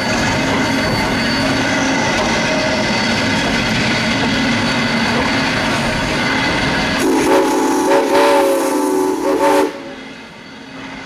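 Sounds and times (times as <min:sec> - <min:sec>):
steam locomotive whistle: 0:07.0 - 0:10.4.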